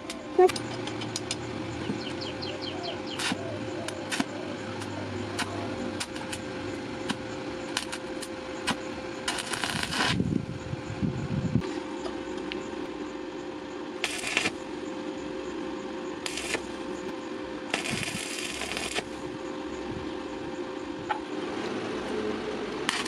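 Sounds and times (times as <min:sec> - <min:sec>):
steady hum: 0:00.0 - 0:23.0
bird chirping: 0:00.2 - 0:05.2
welding electrode crackling and popping: 0:03.0 - 0:10.3, 0:14.0 - 0:14.6, 0:16.2 - 0:17.0, 0:17.7 - 0:19.2.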